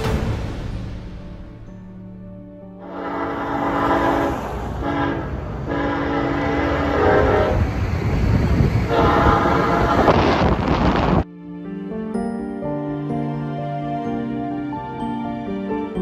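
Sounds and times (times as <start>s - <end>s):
locomotive air horn blasts: 2.8s - 7.7s, 8.9s - 10.5s
train rumble: 2.8s - 11.2s.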